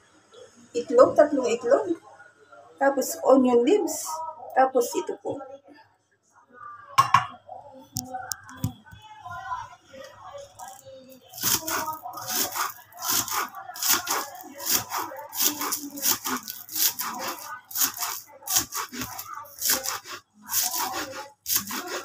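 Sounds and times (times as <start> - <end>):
knife chopping on wooden board: 11.4 - 22.0.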